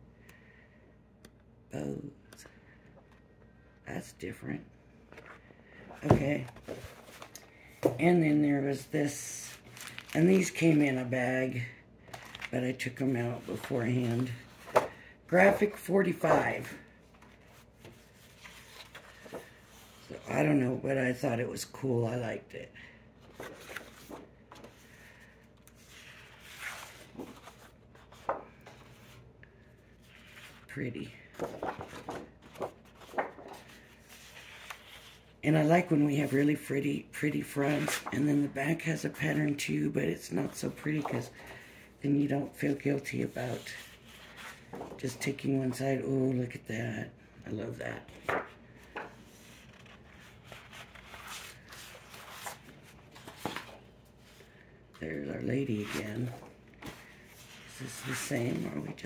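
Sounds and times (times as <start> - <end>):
paper rustling and sliding: 5.1 - 8.0, 9.1 - 11.3, 12.0 - 20.4, 23.2 - 35.4, 40.4 - 45.6, 48.0 - 59.0
paper sheets swishing: 31.3 - 35.2.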